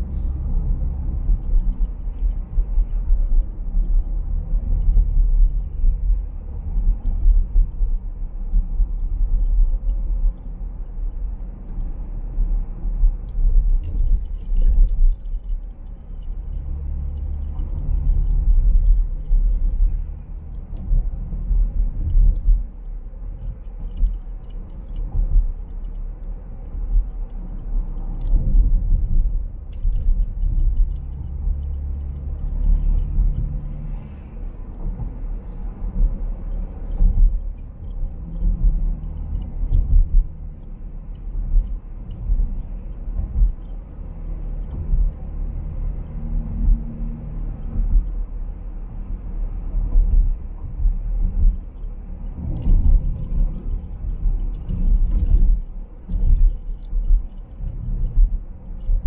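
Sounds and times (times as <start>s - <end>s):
car engine and tyre rumble: 0.0s - 59.0s
faint ticks: 13.2s - 45.3s, 50.0s - 59.0s.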